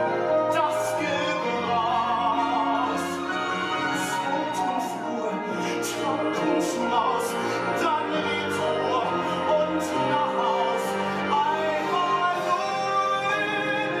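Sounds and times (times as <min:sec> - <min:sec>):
man singing: 0:00.0 - 0:14.0
orchestra playing: 0:00.0 - 0:14.0.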